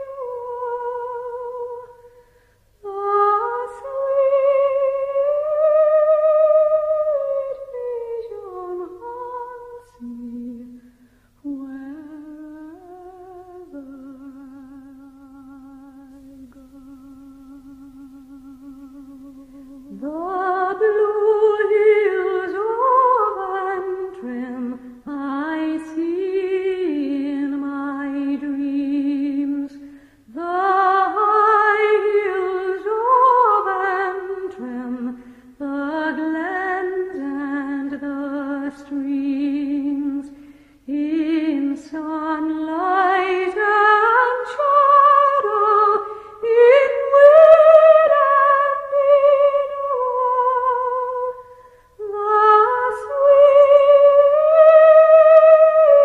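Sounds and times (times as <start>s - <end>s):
person singing wordless melody: 2.8s - 56.0s.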